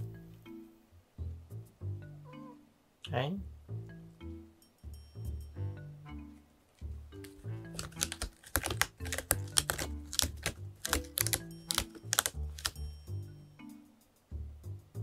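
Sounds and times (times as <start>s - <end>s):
soft background music: 0.0s - 15.0s
cat paws scratching litter: 7.3s - 12.8s.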